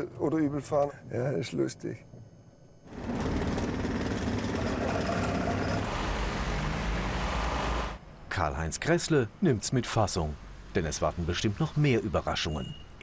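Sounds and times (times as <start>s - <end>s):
cars driving past: 2.9s - 8.0s.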